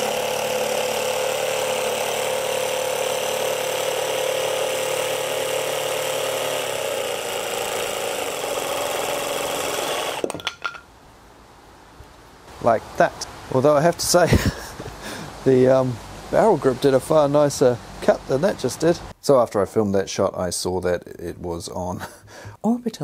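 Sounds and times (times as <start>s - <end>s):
jigsaw cutting board: 0.0s - 10.5s.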